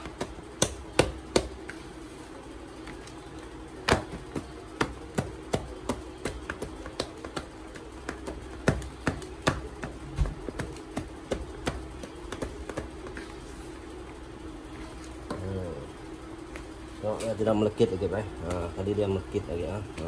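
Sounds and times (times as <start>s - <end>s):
hand slapping dough in a bowl: 0.0s - 1.8s, 3.8s - 13.4s.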